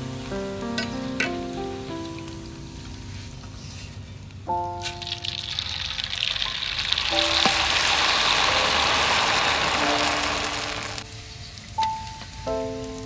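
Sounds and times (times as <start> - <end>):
noodles deep-frying in oil: 4.3 - 13.0.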